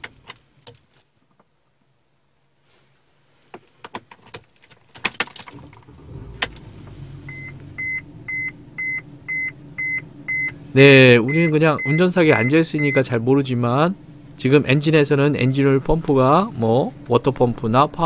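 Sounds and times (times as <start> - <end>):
car engine idling: 5.2 - 18.0
dashboard warning chime beeping: 7.2 - 13.3.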